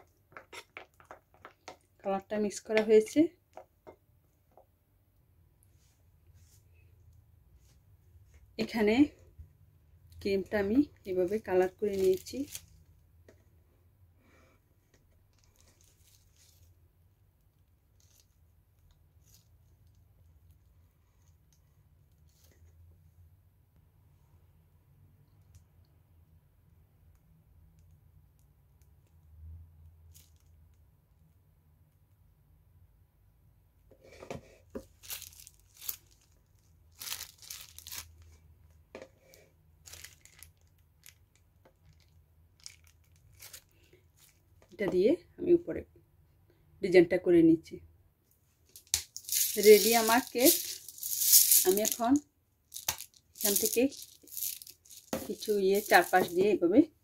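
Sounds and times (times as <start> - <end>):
plastic piping bag crinkling: 11.0 - 12.9, 17.9 - 18.4, 34.8 - 38.4, 39.3 - 44.4, 48.8 - 56.4.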